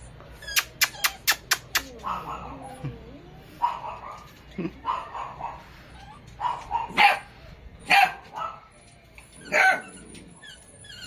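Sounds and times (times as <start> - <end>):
dog barking: 3.6 - 4.2, 6.4 - 8.7.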